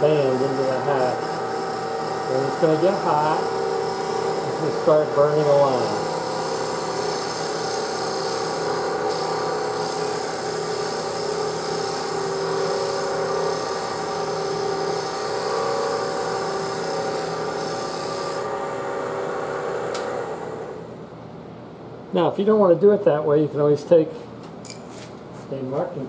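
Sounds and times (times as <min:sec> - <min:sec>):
wood rubbing on spinning lathe: 0:00.0 - 0:20.8.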